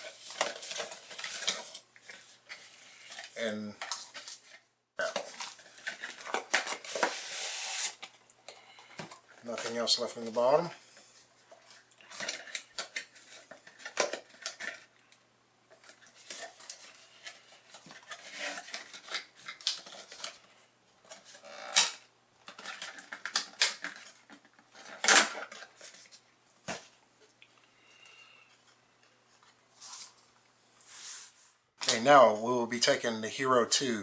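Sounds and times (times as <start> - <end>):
packaging rustling and scraping: 0.0 - 15.0, 15.7 - 27.0, 29.3 - 31.6
sharp plastic clatters: 11.7 - 14.9, 21.0 - 26.9.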